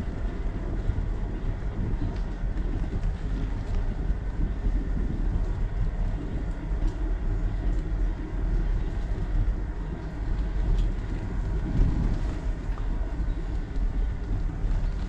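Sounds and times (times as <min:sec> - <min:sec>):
wind buffeting microphone: 0:00.0 - 0:15.0
faint ticks from bicycle: 0:02.0 - 0:11.6.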